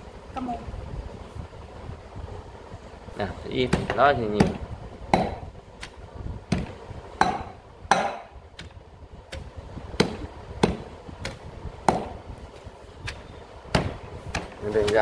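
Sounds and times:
pestle pounding in metal mortar: 3.6s - 5.5s, 6.5s - 8.4s, 9.3s - 12.3s, 13.0s - 15.0s.

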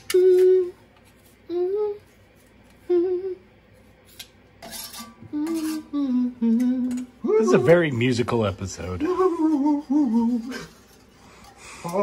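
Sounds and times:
man humming: 0.0s - 0.8s, 1.4s - 2.0s, 2.8s - 3.5s, 5.2s - 7.9s, 8.9s - 10.8s
knife scraping pot rim: 4.1s - 5.9s.

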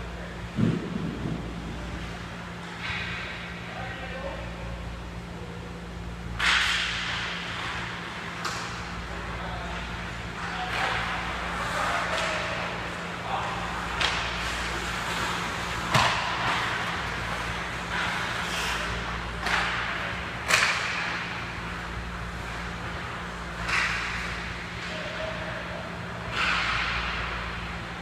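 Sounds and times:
steady low hum: 0.0s - 28.0s
sticks and puck clacking: 6.4s - 21.8s, 22.4s - 25.6s, 26.2s - 27.6s.

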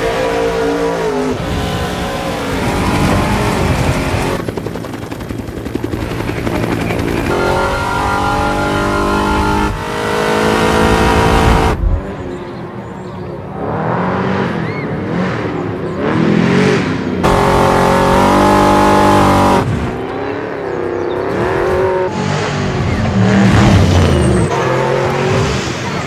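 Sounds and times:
small petrol engine revving: 0.0s - 4.5s, 6.0s - 11.8s, 16.0s - 25.5s.

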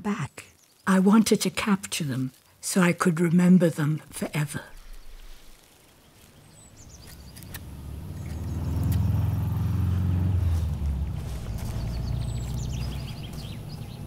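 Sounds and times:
bird chirping faintly: 4.7s - 14.0s
vehicle engine rumble: 6.2s - 14.0s.

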